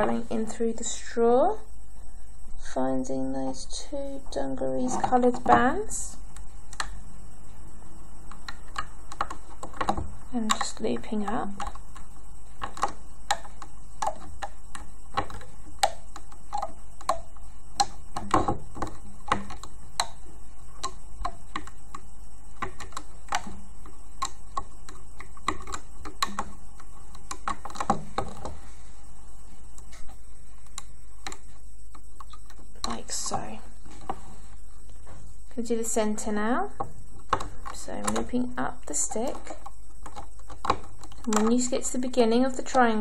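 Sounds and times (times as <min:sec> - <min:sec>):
steady low hum: 0:00.0 - 0:43.0.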